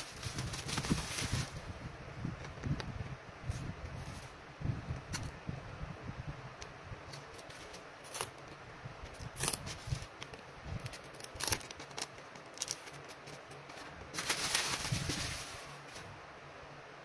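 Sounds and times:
bubble wrap crinkling: 0.0 - 1.6, 10.8 - 16.1
cardboard and tape rustling: 0.0 - 1.6, 9.1 - 16.1.

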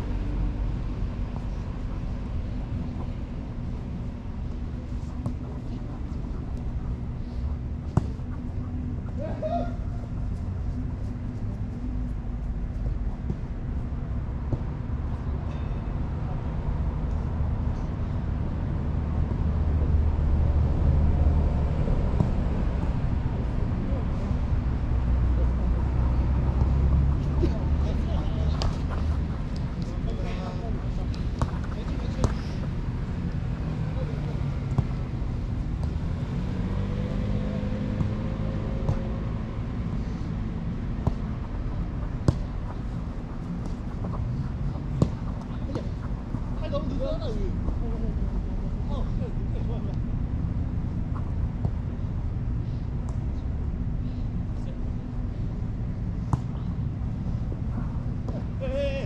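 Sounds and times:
low rumble of outdoor background noise: 0.0 - 59.0
ball kicked on artificial turf: 4.8 - 8.5, 22.1 - 22.6, 26.4 - 32.7, 34.6 - 35.1, 37.4 - 39.3, 40.8 - 46.0, 56.2 - 56.7.

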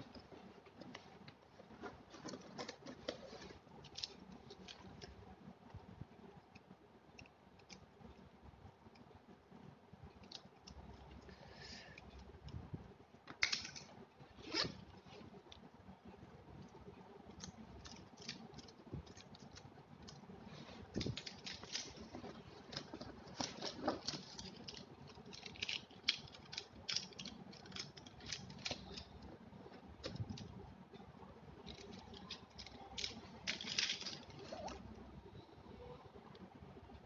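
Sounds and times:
rustling: 0.0 - 5.2, 17.5 - 30.6
plastic pens clicking together: 6.5 - 7.9, 10.1 - 12.6, 13.3 - 13.9, 17.3 - 20.3, 22.7 - 30.6, 31.6 - 34.8.

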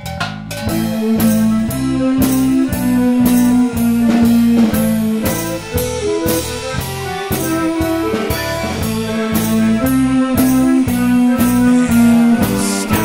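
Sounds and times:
drum kit beat: 0.0 - 13.0
rock guitar: 0.0 - 13.0.

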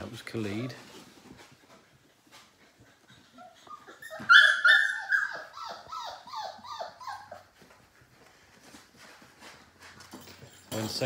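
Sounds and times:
puppy yipping and whining: 3.0 - 7.8.

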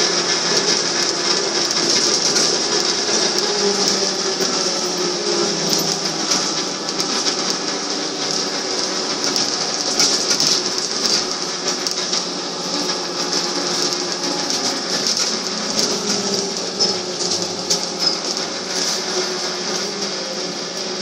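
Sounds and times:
trolleybus interior running noise: 0.0 - 21.0.

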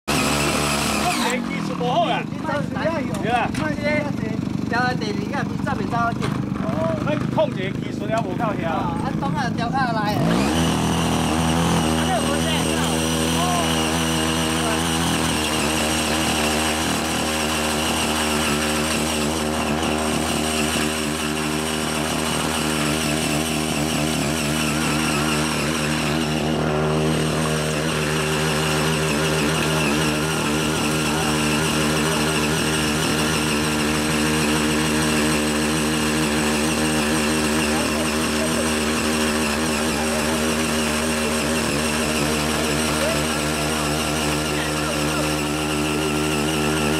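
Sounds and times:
small petrol engine running: 0.0 - 46.9
tiller tines churning clay: 0.0 - 46.9.

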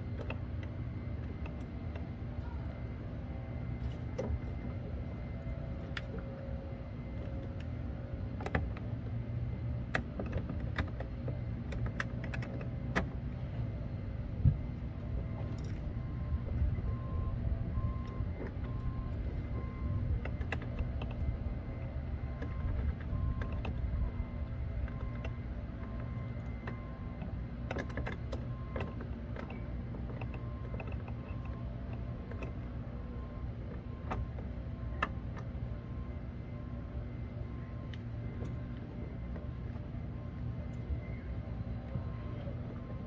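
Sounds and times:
steady low hum: 0.0 - 43.0
car warning chime beeping: 15.0 - 43.0.

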